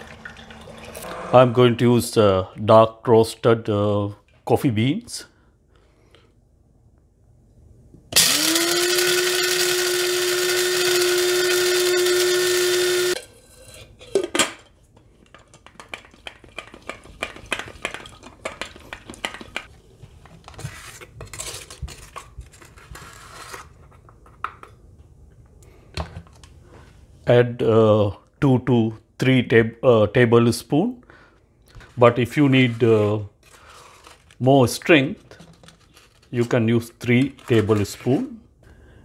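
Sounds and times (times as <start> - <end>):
electric coffee grinder whining: 8.1 - 13.2.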